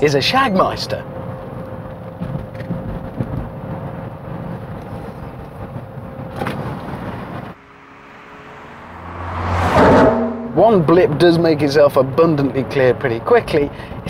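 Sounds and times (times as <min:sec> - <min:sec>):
car engine and road noise: 0:00.0 - 0:14.0
car passing by: 0:06.4 - 0:11.8.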